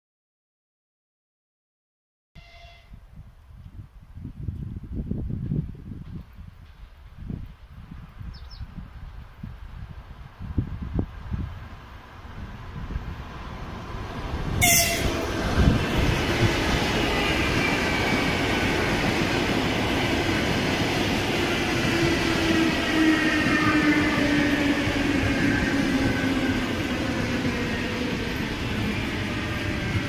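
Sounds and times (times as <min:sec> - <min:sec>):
train wheels on rails: 0:04.4 - 0:30.0
train whine falling in pitch: 0:14.6 - 0:15.4.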